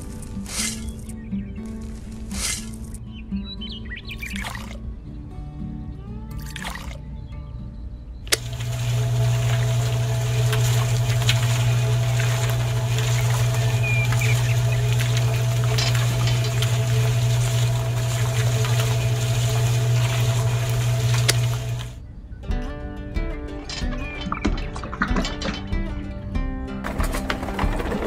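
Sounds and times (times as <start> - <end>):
electric motor humming: 8.3 - 22.0.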